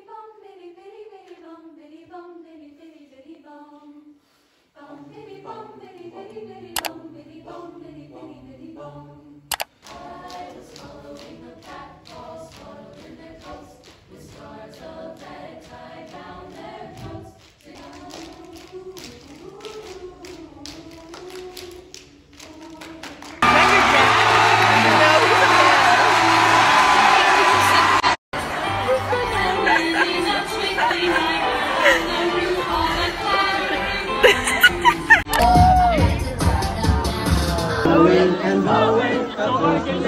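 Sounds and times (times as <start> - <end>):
choir singing a cappella: 0.0 - 40.0
sharp repeated clicks: 9.5 - 9.7.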